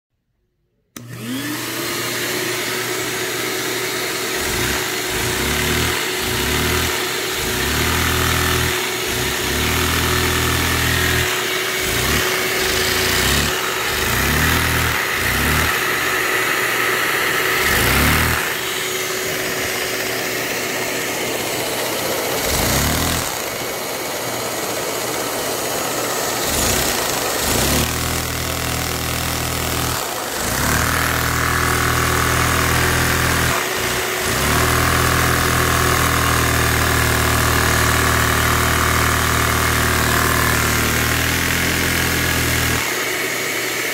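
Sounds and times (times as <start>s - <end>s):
shop vacuum running: 1.0s - 43.9s
small engine revving: 1.0s - 43.9s.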